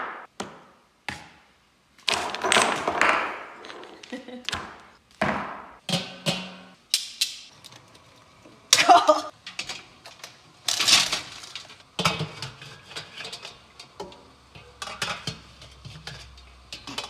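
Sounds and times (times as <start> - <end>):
metal tongs and pot clanking: 5.9 - 7.8, 8.8 - 17.0.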